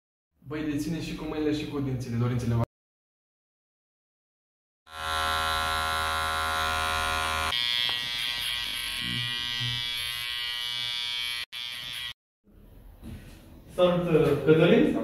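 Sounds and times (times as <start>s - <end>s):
electric hair clippers running: 4.9s - 12.2s.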